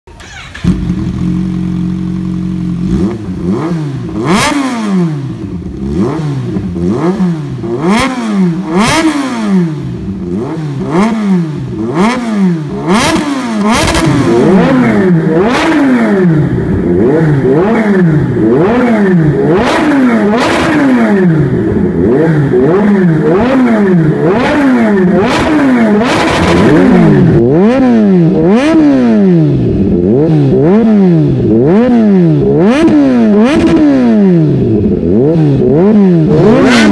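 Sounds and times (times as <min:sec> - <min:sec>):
exhaust cracks: 0:00.1 - 0:27.8
motorcycle engine revving: 0:00.1 - 0:36.9.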